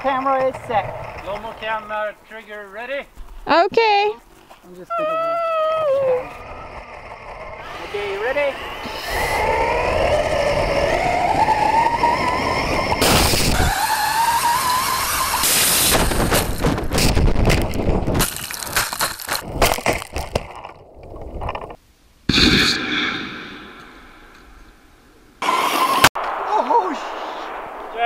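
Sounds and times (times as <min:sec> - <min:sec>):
electric motor whining: 0:05.7 - 0:16.9
rocket blast: 0:13.0 - 0:13.8, 0:22.3 - 0:24.3, 0:25.5 - 0:28.0
clatter of toy car tumbling: 0:15.6 - 0:21.8.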